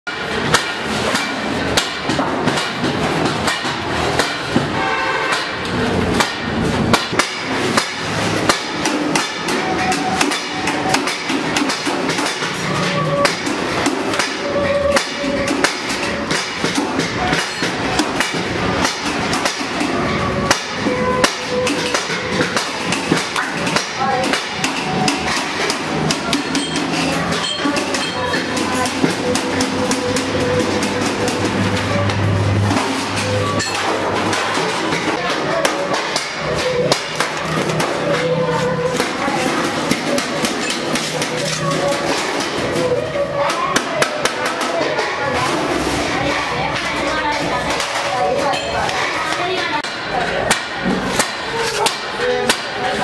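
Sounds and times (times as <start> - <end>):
hammering on sheet metal: 0.1 - 53.0.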